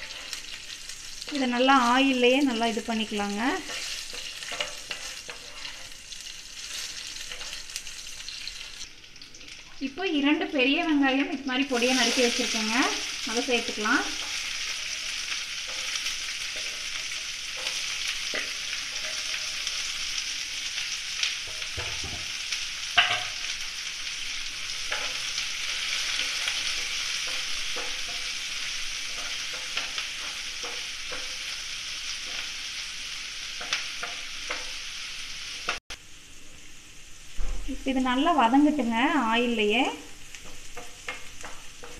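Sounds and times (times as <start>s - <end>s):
wooden spatula scraping a pan: 0.0s - 8.7s, 11.8s - 20.2s
onions sizzling in hot oil: 0.0s - 41.9s.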